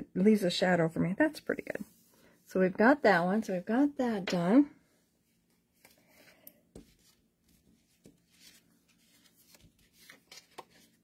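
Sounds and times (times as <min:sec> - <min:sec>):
rustling of cardstock: 0:05.8 - 0:11.0.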